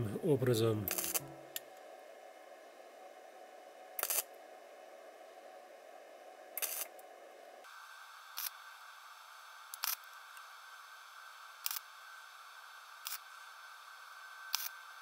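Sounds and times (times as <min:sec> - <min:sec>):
welding arc bursts: 0:00.9 - 0:01.2, 0:04.0 - 0:04.3, 0:06.6 - 0:06.9.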